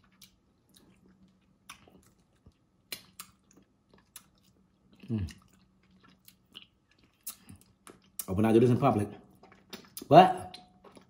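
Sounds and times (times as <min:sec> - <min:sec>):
person chewing: 0:00.0 - 0:08.4, 0:09.2 - 0:11.0
lip smacks: 0:01.7 - 0:04.4, 0:09.4 - 0:11.0.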